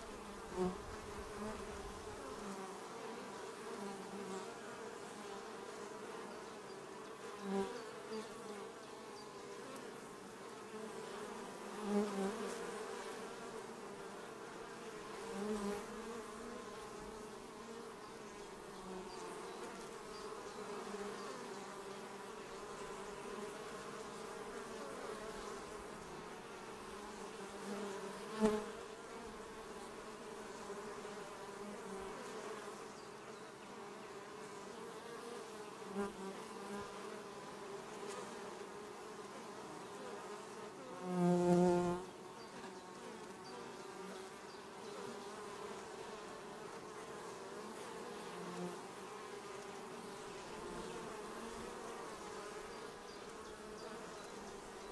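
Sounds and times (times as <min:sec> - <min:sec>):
bees buzzing: 0:00.0 - 0:54.9.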